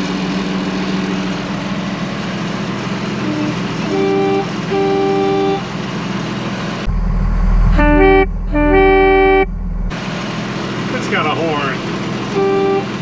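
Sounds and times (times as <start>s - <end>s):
diesel engine idling: 0.0s - 13.0s
twin air horns blasting: 3.2s - 5.7s, 6.8s - 9.8s, 12.2s - 13.0s.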